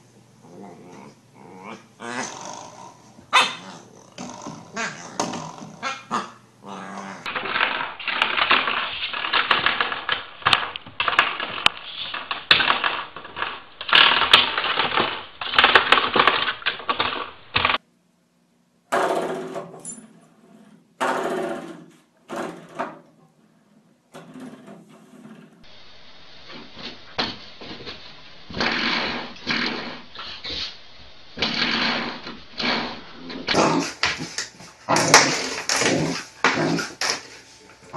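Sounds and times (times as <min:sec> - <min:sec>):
puppies growling: 0:00.4 - 0:17.8, 0:31.4 - 0:37.9.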